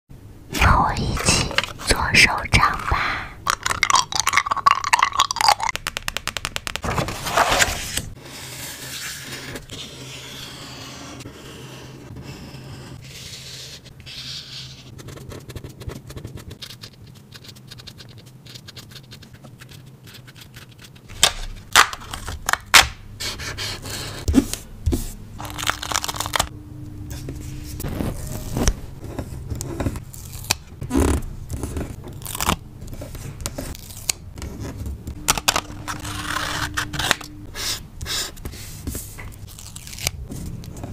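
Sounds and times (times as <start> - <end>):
paper and stickers crackling: 0.8 - 8.2, 14.1 - 22.8, 23.6 - 26.5, 27.6 - 40.9
paper scraping: 6.4 - 21.2, 23.2 - 26.5, 27.1 - 40.9
low steady hum: 21.0 - 40.9.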